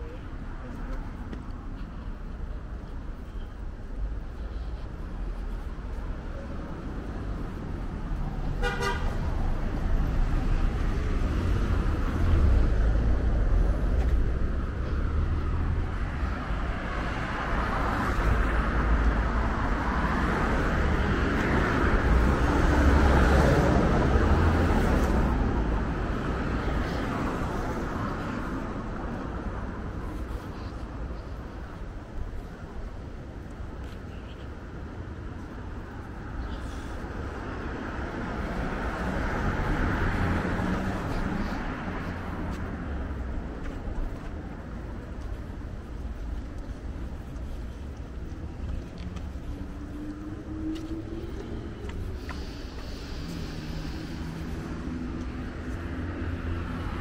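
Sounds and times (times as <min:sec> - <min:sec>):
cars driving past: 0:06.5 - 0:57.0
car horn toot: 0:08.6 - 0:09.1.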